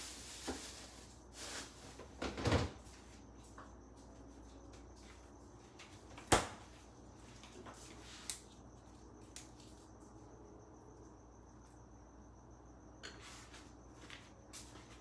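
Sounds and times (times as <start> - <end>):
refrigerator door shutting: 2.2 - 2.8.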